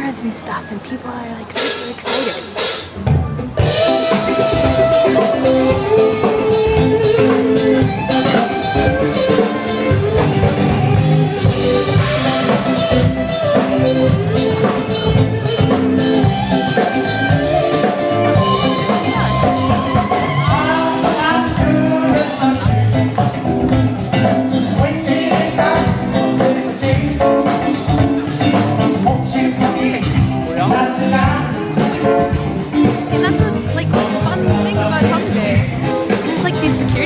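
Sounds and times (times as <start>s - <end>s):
live rock band: 0.0s - 37.0s
person singing: 18.7s - 23.3s.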